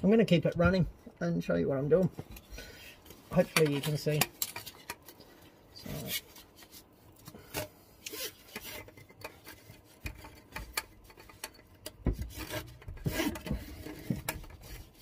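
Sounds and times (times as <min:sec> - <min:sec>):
rubbing and scraping handling noises: 0:00.0 - 0:15.0.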